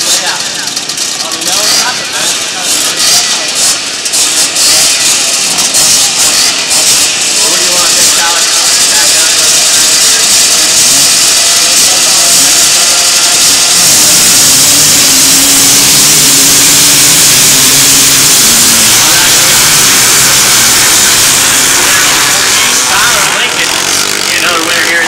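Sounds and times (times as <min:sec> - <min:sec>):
racing engines revving: 0:00.0 - 0:25.0
loud hiss: 0:01.6 - 0:25.0.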